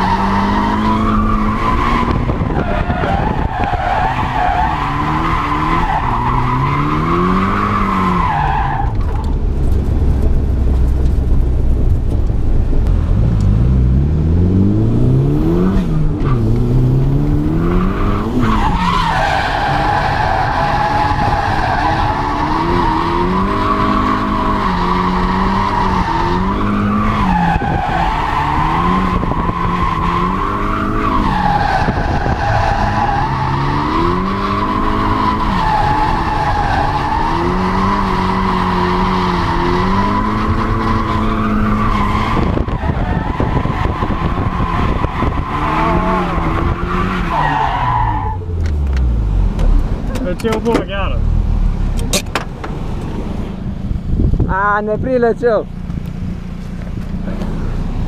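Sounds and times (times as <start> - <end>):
tyres squealing: 0.0 - 9.2
car engine revving: 0.0 - 54.4.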